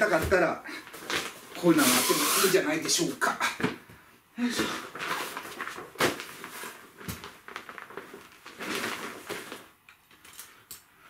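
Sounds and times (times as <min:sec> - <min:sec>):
fabric rustling and swishing: 0:04.8 - 0:09.8.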